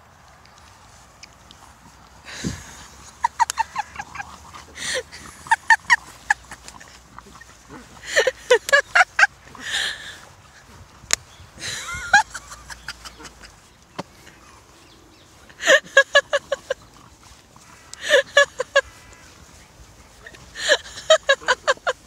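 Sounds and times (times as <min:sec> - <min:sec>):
gasping breaths: 0:02.2 - 0:03.2, 0:04.0 - 0:08.5, 0:09.5 - 0:10.8, 0:19.9 - 0:21.1
person laughing hard: 0:02.3 - 0:10.3, 0:11.6 - 0:13.7, 0:15.6 - 0:16.8, 0:17.9 - 0:19.0, 0:20.2 - 0:22.0.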